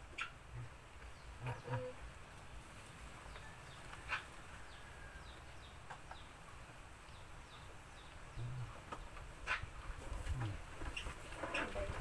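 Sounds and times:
faint animal calls: 1.4 - 2.1.

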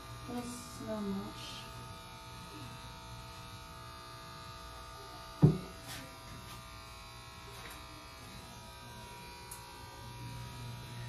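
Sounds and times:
electric hair clippers buzzing: 0.0 - 11.0
sharp thump: 5.4 - 5.7.

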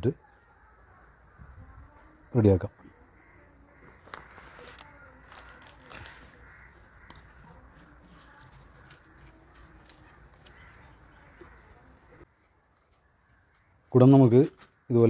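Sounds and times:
faint bird calls: 0.1 - 14.0
banana leaf crinkling: 4.0 - 11.5.

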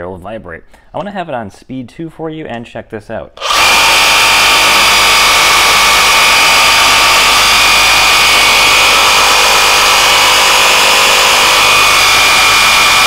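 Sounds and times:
reciprocating saw motor squealing: 3.4 - 13.0.

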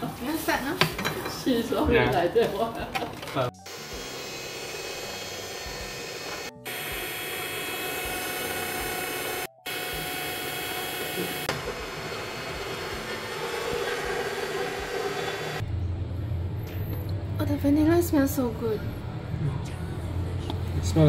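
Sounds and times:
hand mixer whirring: 3.6 - 15.6.

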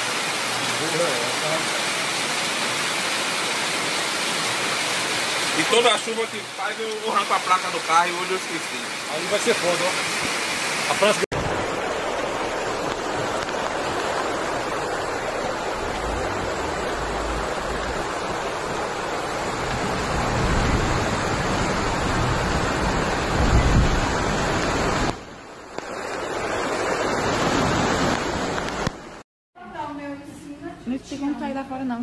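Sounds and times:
floodwater rushing: 0.0 - 29.2
heavy rain: 0.0 - 29.2
low rumble: 14.7 - 24.4.

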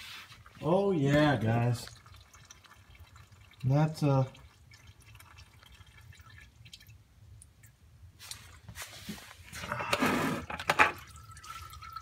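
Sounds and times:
rubbing and scuffing noise: 0.0 - 0.6, 8.2 - 10.5
oil trickling and dripping: 0.0 - 9.7, 10.6 - 12.0.

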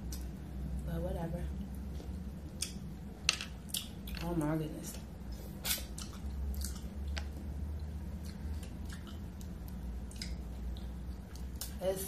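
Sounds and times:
low steady hum: 0.0 - 12.0
wet chewing and smacking: 3.6 - 4.3, 5.4 - 11.8.

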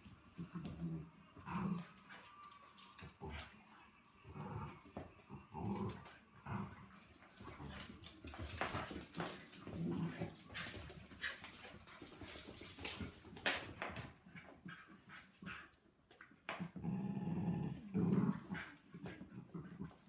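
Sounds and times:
paws scrabbling on wooden floor: 0.0 - 16.8
dogs growling and whimpering: 0.4 - 6.9, 16.6 - 20.0.

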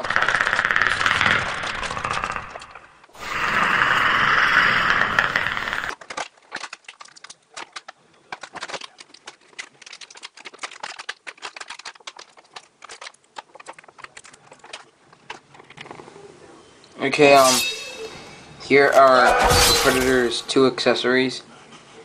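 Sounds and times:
plastic packaging crinkling: 6.0 - 15.7.

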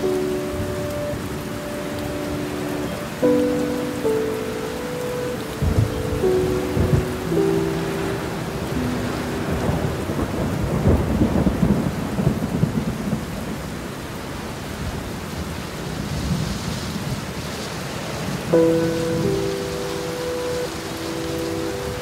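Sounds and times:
heavy rain: 0.0 - 22.0
thunder rolling: 5.6 - 13.6.

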